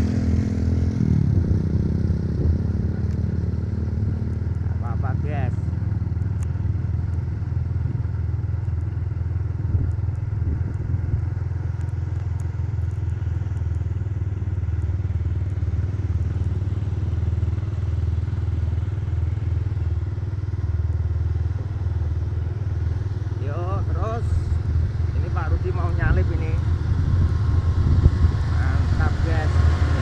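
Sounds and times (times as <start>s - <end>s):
wind noise: 0.0s - 4.3s, 9.5s - 11.4s, 24.2s - 30.0s
motorcycle engine drone: 0.0s - 30.0s
road noise: 0.0s - 30.0s.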